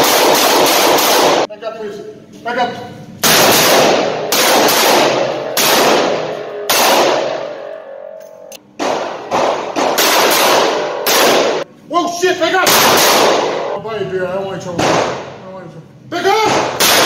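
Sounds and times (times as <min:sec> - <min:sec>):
revolver shots echoing: 0:03.2 - 0:11.7, 0:16.4 - 0:17.0.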